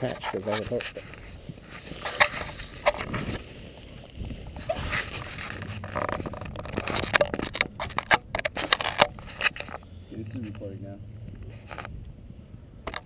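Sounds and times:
camera rustling against jacket: 0:00.0 - 0:12.2
sharp clicks and knocks: 0:05.0 - 0:12.2.

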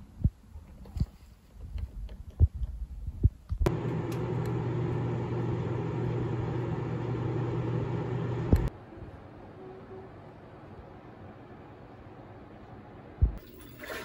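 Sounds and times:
microwave click: 0:03.7 - 0:08.7
microwave oven humming: 0:03.7 - 0:08.7.

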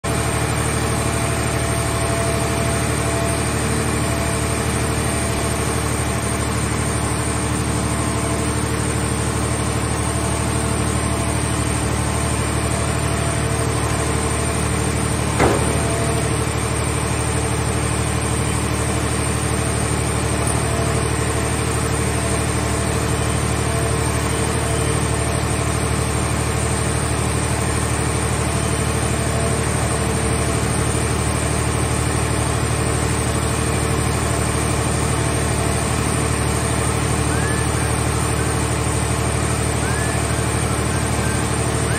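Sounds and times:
hydraulic machinery droning: 0:00.2 - 0:26.0, 0:35.4 - 0:41.9
sharp knock: 0:15.4 - 0:16.4.

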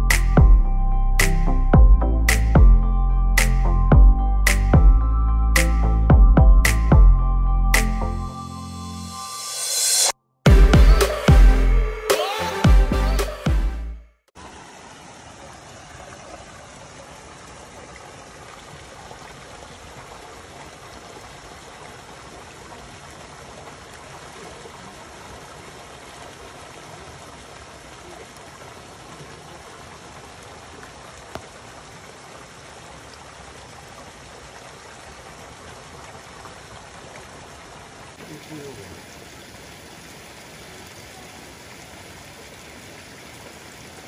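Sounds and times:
stream rushing: 0:14.4 - 0:44.0.

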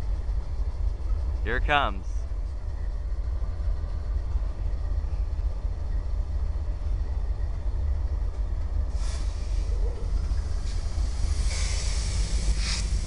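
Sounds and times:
locomotive engine rumble: 0:00.0 - 0:13.0
train on rails: 0:00.0 - 0:13.0
brief hiss: 0:09.0 - 0:09.8, 0:10.4 - 0:13.0.

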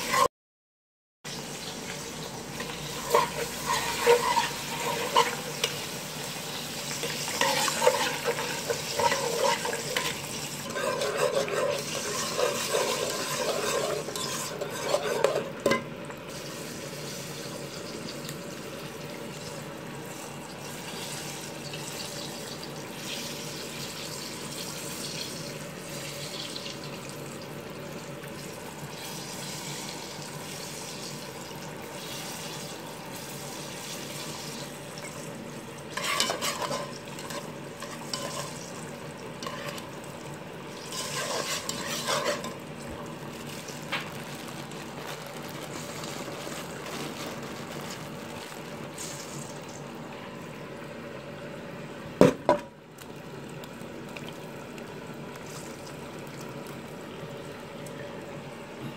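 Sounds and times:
sauce sizzling: 0:01.3 - 0:52.1, 0:52.7 - 0:58.8
whisk stirring liquid in a pan: 0:02.5 - 0:15.8, 0:35.9 - 0:43.2.

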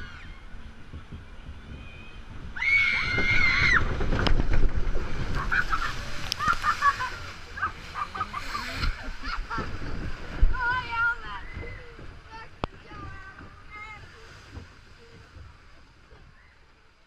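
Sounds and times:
water splashing and sloshing: 0:00.0 - 0:17.0
rider screaming: 0:02.6 - 0:04.0.

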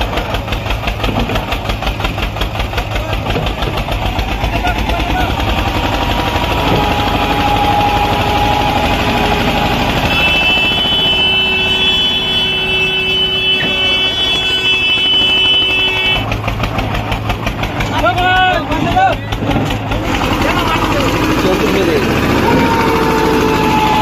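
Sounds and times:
tractor diesel engine chugging: 0:00.0 - 0:24.0.

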